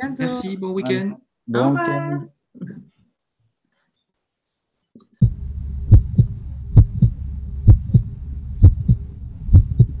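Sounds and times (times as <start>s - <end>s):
heartbeat thumps: 5.2s - 10.0s
low steady rumble: 5.2s - 10.0s.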